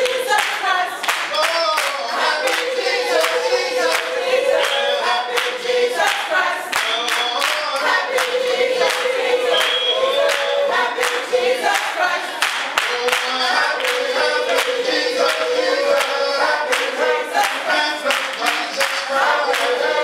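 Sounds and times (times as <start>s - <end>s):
choir singing: 0.0s - 20.0s
rhythmic hand clapping: 0.0s - 20.0s.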